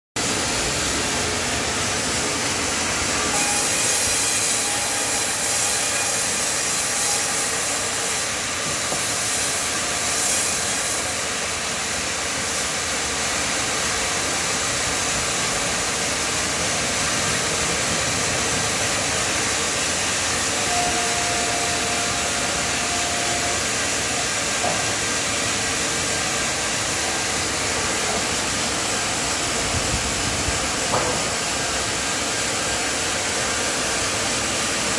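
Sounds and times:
band saw cutting log: 2.2s - 11.3s, 17.7s - 28.8s.

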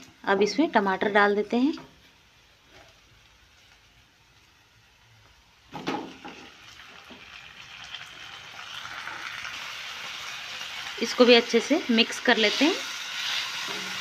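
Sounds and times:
frying sizzle: 0.0s - 14.0s
food dropping into pan thump: 5.7s - 6.5s.

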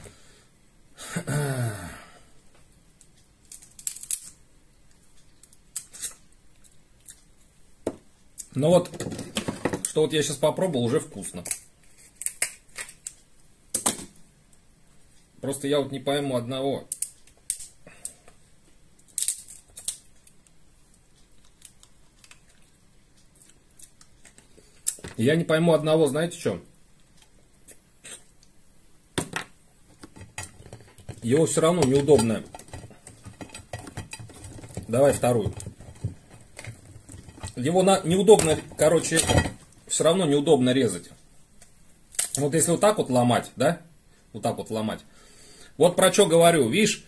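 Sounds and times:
person grunting: 1.0s - 2.2s
crab shell cracking and snapping: 3.5s - 4.4s, 11.4s - 13.2s, 16.9s - 18.2s, 19.0s - 20.6s, 23.4s - 25.0s
crab shell crackling: 18.9s - 25.0s.

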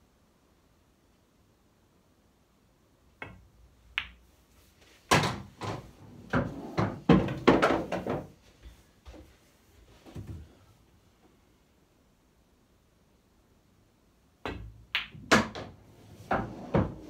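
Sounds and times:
ball rolling inside table: 5.6s - 8.3s, 15.3s - 17.0s.

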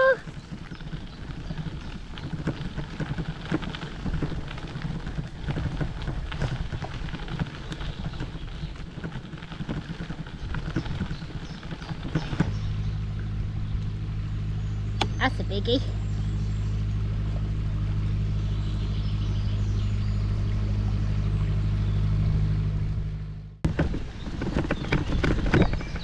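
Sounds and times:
bicycle tyres rolling on gravel: 0.0s - 26.0s
boat engine droning: 0.0s - 26.0s.

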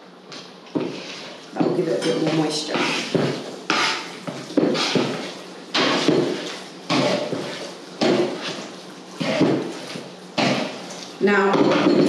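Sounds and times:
fork knocking wooden bowl: 1.6s - 8.6s, 9.2s - 10.8s.

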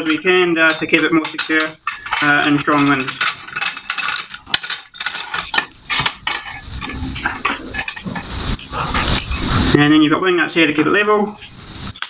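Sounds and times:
metal tripod clinking and rattling: 0.0s - 9.5s
sharp clicks and knocks: 0.0s - 9.5s.

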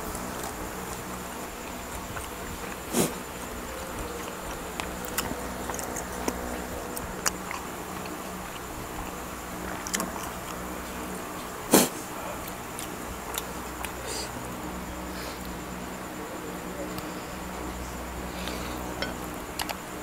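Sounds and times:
steady low hum: 0.0s - 20.0s
clicks and wet eating smacks: 0.1s - 14.4s, 18.4s - 20.0s.

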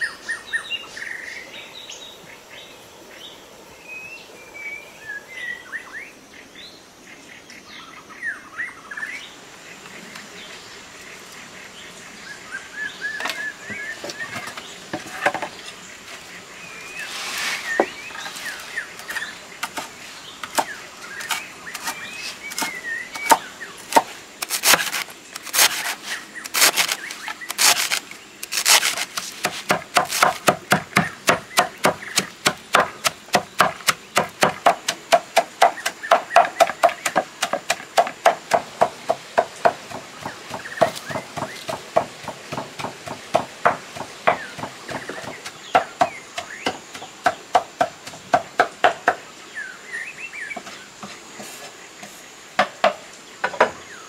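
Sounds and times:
cleaver chopping on wooden board: 19.6s - 49.2s.

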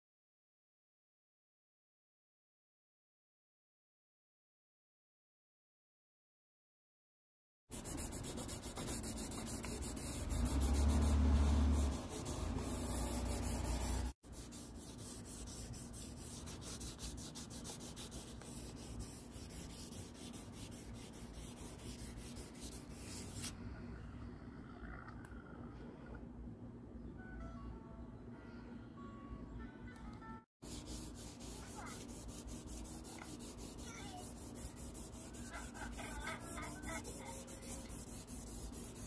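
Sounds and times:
sandpaper scratching on plastic: 7.7s - 23.5s, 30.6s - 39.0s.

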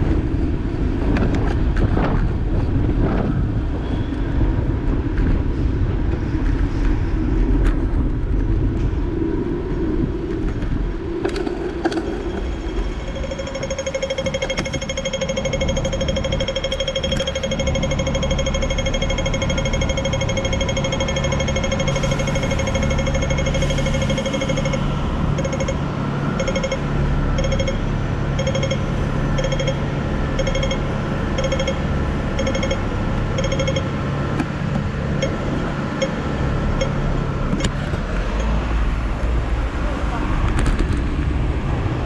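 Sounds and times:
idling traffic hum: 0.0s - 42.0s
crossing signal beeping: 11.9s - 34.3s, 35.0s - 38.7s.

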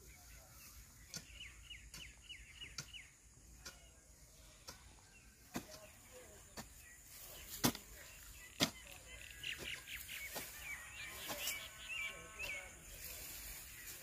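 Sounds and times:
birds chirping: 0.0s - 14.0s
hoe chopping into dry soil: 5.4s - 6.8s, 7.4s - 9.0s.

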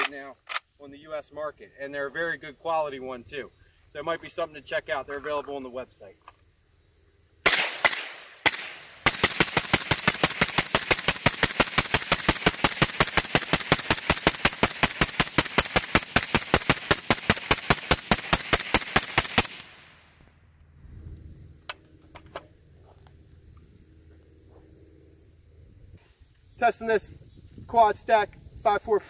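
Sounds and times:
magazine clicks: 0.0s - 0.7s
suppressed rifle shots: 7.4s - 19.9s.

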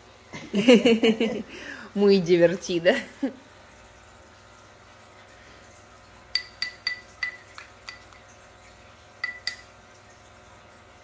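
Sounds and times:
plastic spoon clinking in ceramic bowl: 6.3s - 8.3s, 9.2s - 9.7s.

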